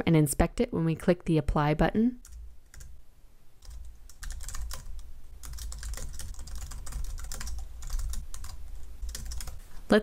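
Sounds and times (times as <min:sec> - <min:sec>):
steady low hum: 0:00.0 - 0:10.0
computer keyboard typing: 0:02.2 - 0:02.9, 0:03.6 - 0:09.6.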